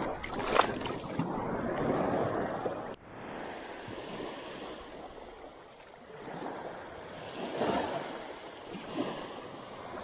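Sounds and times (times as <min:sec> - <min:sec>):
small waves washing on sand: 0:00.0 - 0:10.0.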